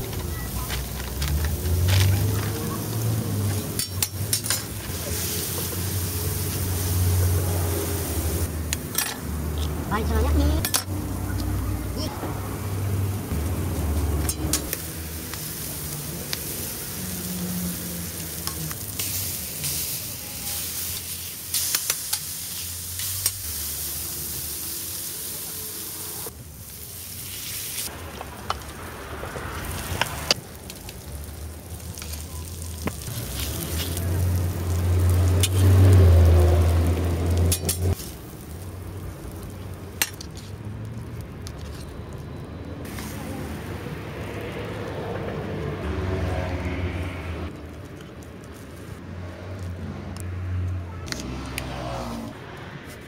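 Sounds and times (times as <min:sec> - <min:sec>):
food sizzling on griddle: 0:00.0 - 0:41.4, 0:42.8 - 0:47.8
metal utensils clinking: 0:03.4 - 0:05.8, 0:08.8 - 0:09.3.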